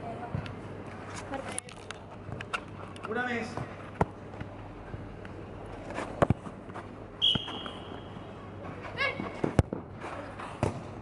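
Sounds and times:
football kicks and bounces: 6.2s - 6.4s, 9.2s - 9.9s, 10.6s - 11.0s.

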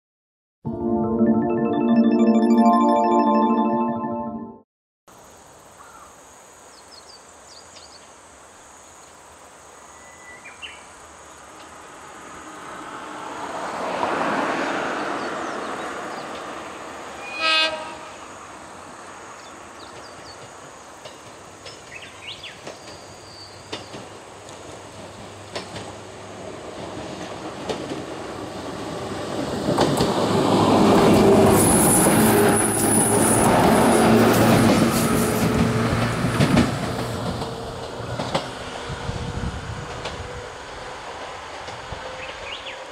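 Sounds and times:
electric train passing: 11.0s - 42.9s
train horn blast: 17.2s - 18.4s
wheels clicking over rail joints: 19.8s - 26.0s, 26.8s - 28.2s, 29.4s - 30.3s.

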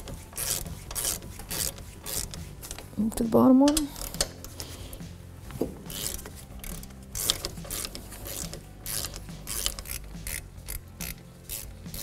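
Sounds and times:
hand ratchet clicking: 0.0s - 2.9s, 5.9s - 12.0s.

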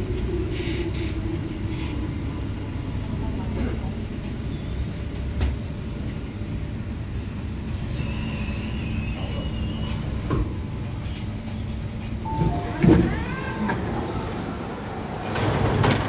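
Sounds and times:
electric train humming: 0.0s - 16.0s
sliding doors whining: 12.2s - 16.0s.

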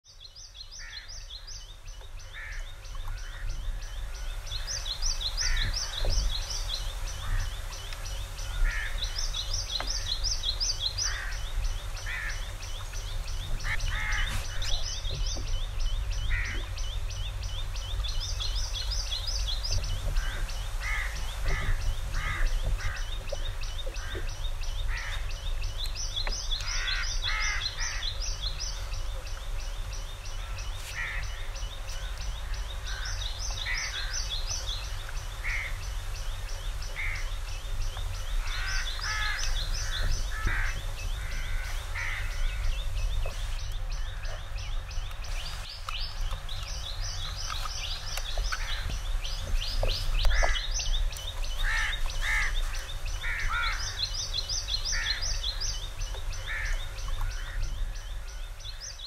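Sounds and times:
birds lower calls: 0.1s - 59.0s.

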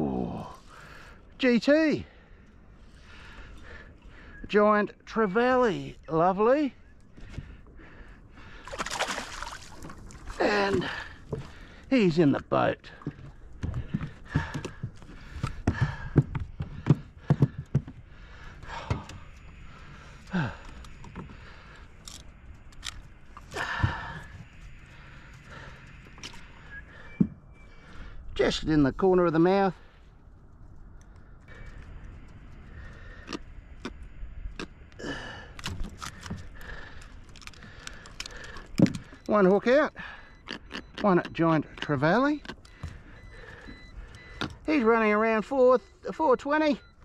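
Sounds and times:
low steady rumble: 40.0s - 47.0s.

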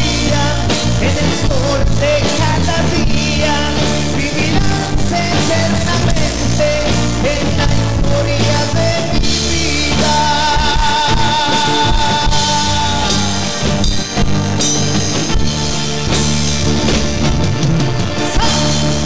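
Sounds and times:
pop-rock ballad band music: 0.0s - 19.0s.

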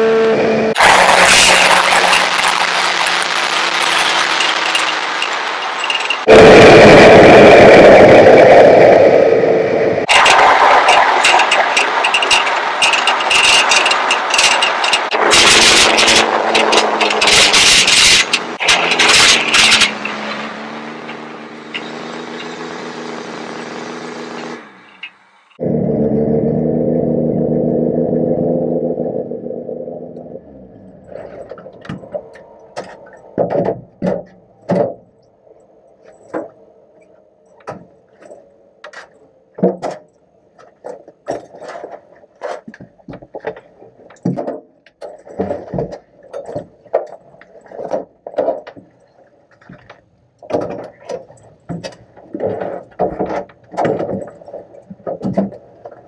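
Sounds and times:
race car engine running: 0.0s - 33.4s
clicks knocks and rattles in cockpit: 37.5s - 56.0s.

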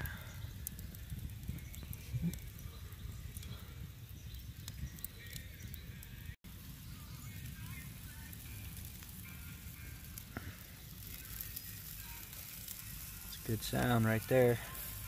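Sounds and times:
steaks sizzling on a grill: 4.9s - 15.0s.

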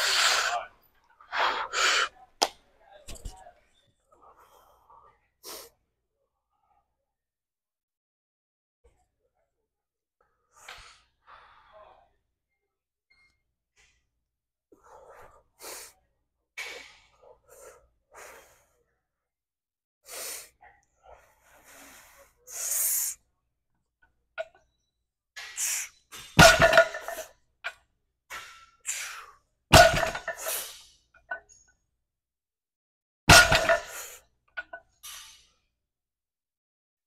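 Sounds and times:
sharp breaths and sniffs: 1.3s - 2.2s, 16.6s - 18.9s, 20.0s - 23.2s.

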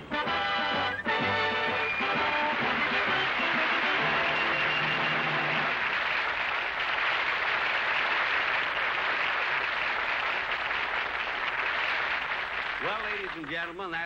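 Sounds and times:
band music: 0.0s - 5.8s
studio audience applauding: 0.4s - 14.0s.

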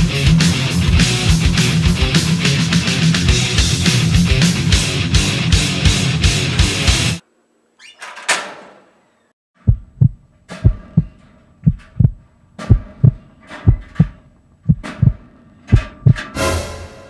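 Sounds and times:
metal locker door clanking shut: 8.0s - 8.9s
heartbeat sound effect: 9.7s - 16.3s.

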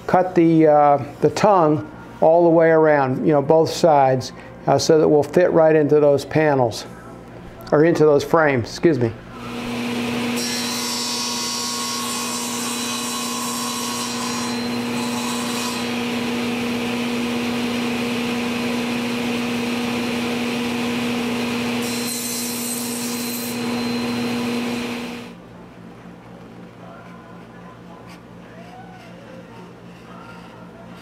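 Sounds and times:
table saw cutting wood: 9.4s - 25.4s.

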